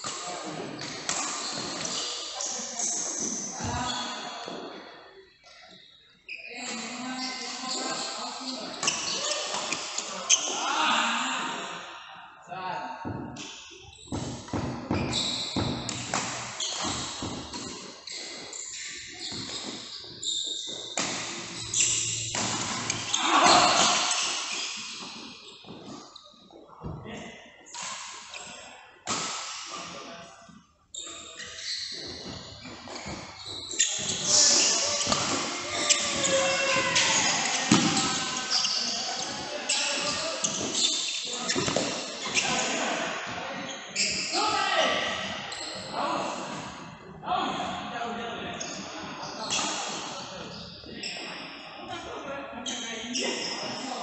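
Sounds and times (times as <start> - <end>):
shoes squeaking on court floor: 0.0 - 10.6, 13.3 - 29.2, 29.8 - 44.4, 45.1 - 46.9, 48.6 - 51.5, 52.6 - 54.0
voices in background: 0.0 - 20.6, 21.2 - 54.0
racket hitting shuttlecock: 35.0 - 36.2.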